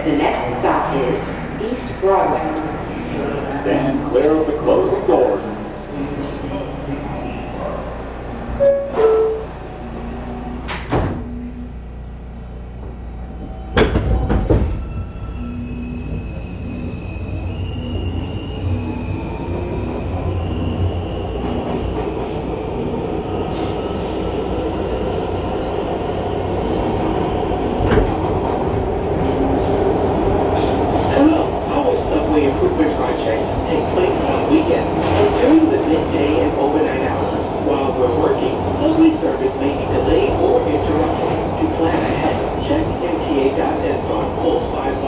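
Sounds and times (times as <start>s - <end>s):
train doors clunking shut: 10.6s - 11.4s, 13.4s - 15.1s, 27.8s - 31.4s.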